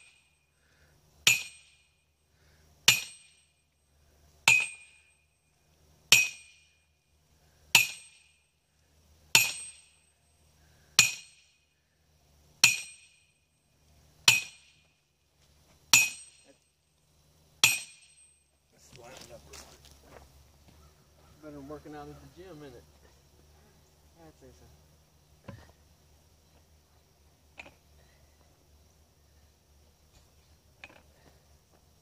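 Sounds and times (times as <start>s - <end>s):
sledgehammer clanging on steel post: 1.2s - 1.8s, 2.9s - 3.4s, 4.5s - 5.0s, 6.1s - 6.6s, 7.8s - 8.3s, 9.4s - 10.0s, 11.0s - 11.5s, 12.6s - 13.2s, 14.3s - 14.7s, 15.9s - 16.4s, 17.6s - 18.3s.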